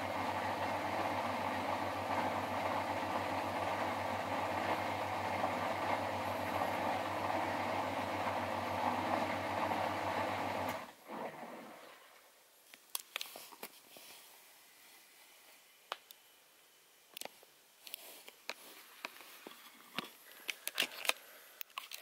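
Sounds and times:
washing machine spinning: 0.0 - 12.0.

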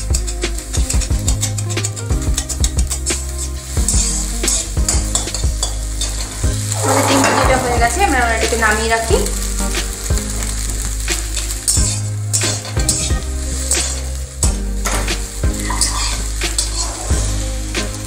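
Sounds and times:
metal spatula scraping a pan: 0.0 - 9.2, 11.3 - 14.2, 14.8 - 17.4
egg sizzling in oil: 0.0 - 18.0
wavering squeak: 6.7 - 7.8.

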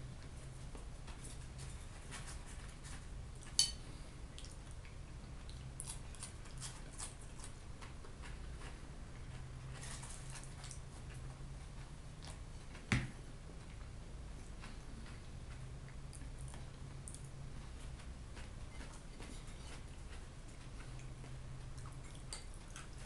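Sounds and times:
fork clinking on plate: 3.5 - 3.8
wet chewing and mouth clicks: 4.3 - 12.5, 14.6 - 23.0.

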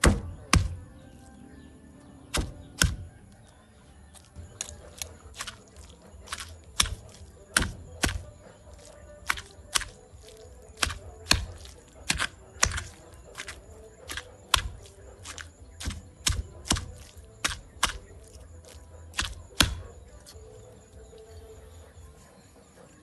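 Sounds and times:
stone pestle pounding in mortar: 0.0 - 0.8, 2.3 - 3.1, 4.4 - 20.0.

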